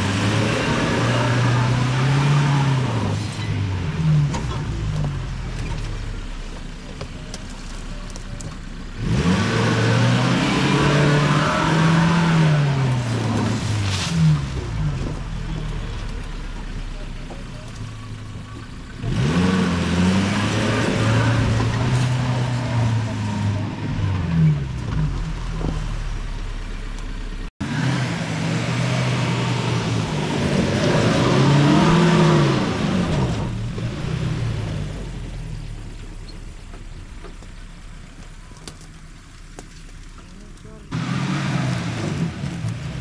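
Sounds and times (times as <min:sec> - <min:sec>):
engine revving hard: 0:00.0 - 0:03.2, 0:09.0 - 0:14.8, 0:19.0 - 0:24.8, 0:27.6 - 0:35.0, 0:40.9 - 0:43.0.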